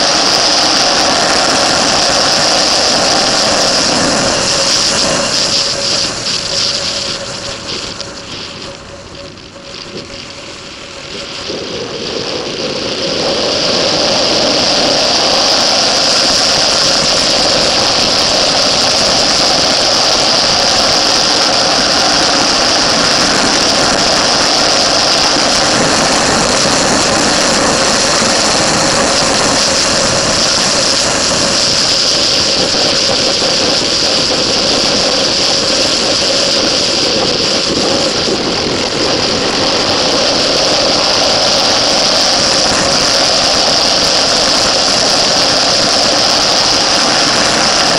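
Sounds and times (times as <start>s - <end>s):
motorcycle engine running hard: 0.0s - 47.9s
rushing wind: 0.0s - 47.9s.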